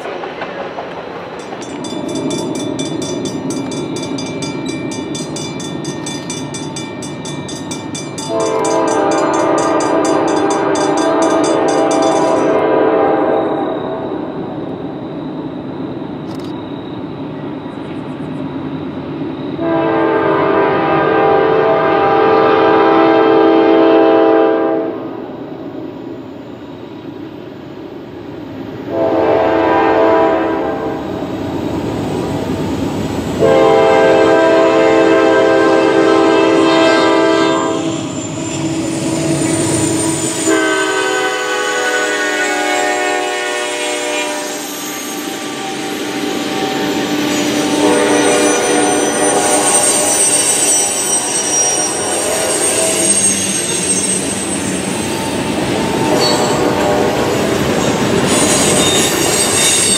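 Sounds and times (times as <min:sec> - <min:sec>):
train rumble: 0:00.0 - 0:59.9
fast high-pitched ringing: 0:01.4 - 0:12.5
train horn blasts: 0:08.2 - 0:14.3, 0:19.6 - 0:25.2, 0:28.9 - 0:31.1, 0:33.4 - 0:53.3, 0:56.0 - 0:57.6.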